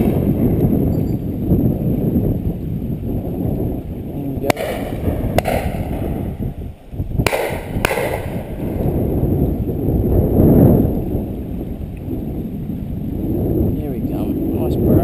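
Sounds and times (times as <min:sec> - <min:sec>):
wind rumble on microphone: 0:00.0 - 0:15.0
shotgun shots with echo: 0:04.5 - 0:06.4, 0:07.2 - 0:08.8.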